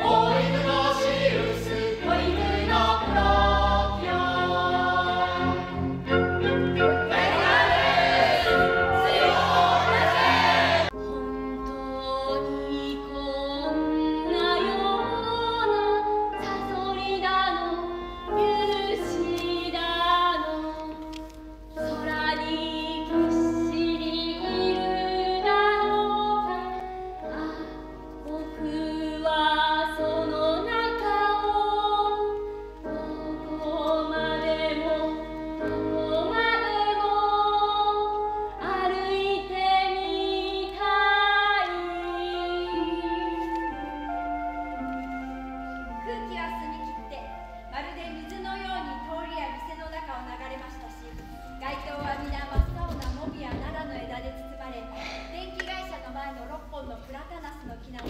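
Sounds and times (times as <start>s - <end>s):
instrumental accompaniment: 0.0s - 58.0s
woman singing: 11.0s - 21.2s, 21.9s - 44.3s.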